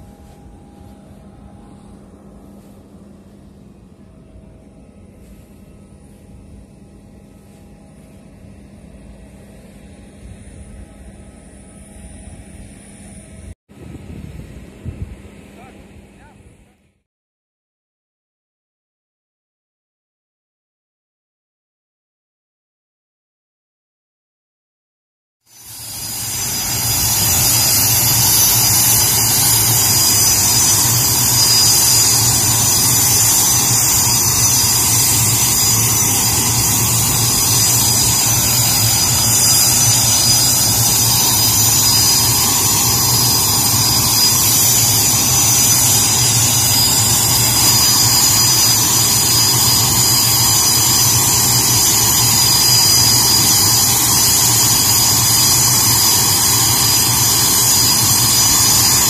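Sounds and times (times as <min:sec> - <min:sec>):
jet engine whine and rumble: 0:00.0 - 0:16.8, 0:25.5 - 0:59.0.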